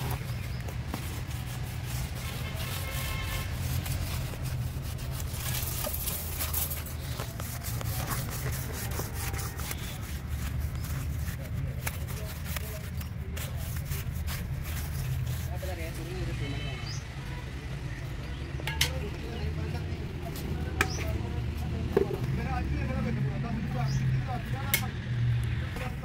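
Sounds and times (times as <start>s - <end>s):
brush scrubbing rough wall: 0.0s - 16.2s.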